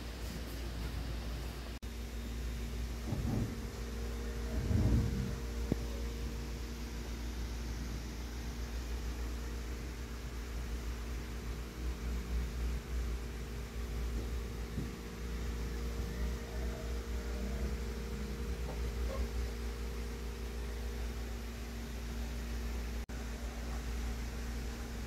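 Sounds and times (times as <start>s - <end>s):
electrical hum: 0.0s - 25.0s
low rumble: 2.9s - 6.1s.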